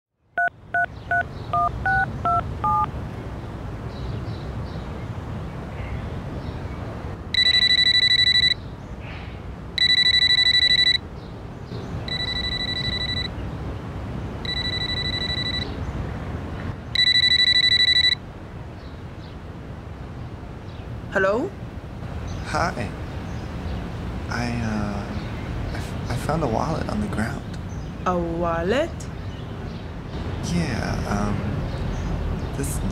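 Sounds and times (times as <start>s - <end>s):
touch-tone keypad beeps: 0.4s - 2.9s, 7.4s - 8.6s, 9.8s - 11.0s, 12.1s - 13.4s, 14.4s - 15.7s, 17.0s - 18.2s
cordless telephone ringing: 7.4s - 8.6s, 9.8s - 11.0s, 12.1s - 13.3s, 14.4s - 15.7s, 17.0s - 18.2s.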